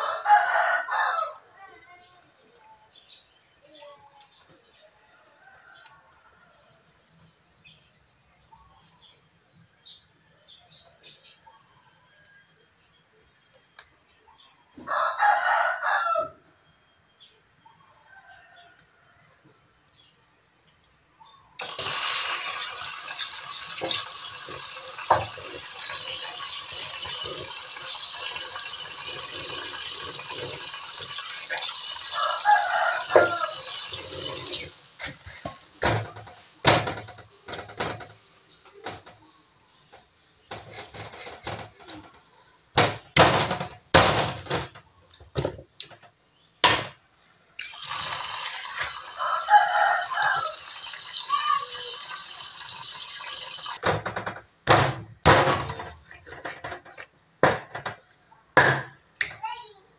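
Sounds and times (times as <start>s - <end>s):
rooster crowing: 0.0s - 1.6s, 14.8s - 16.6s, 28.3s - 34.6s, 48.1s - 51.0s
tap water running into sink: 21.6s - 36.1s, 47.6s - 53.9s
knocks and splashes in sink: 22.6s - 31.3s.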